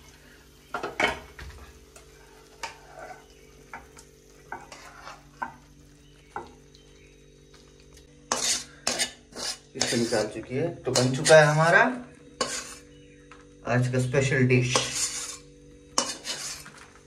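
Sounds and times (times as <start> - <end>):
metal spatula scraping a pan: 2.1 - 3.8, 4.4 - 5.6, 8.3 - 11.8, 12.4 - 12.9, 14.6 - 16.9.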